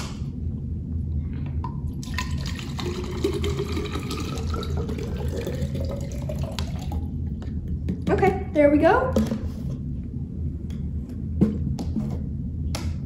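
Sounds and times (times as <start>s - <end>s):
water pouring into plastic bottle: 2.0s - 7.0s.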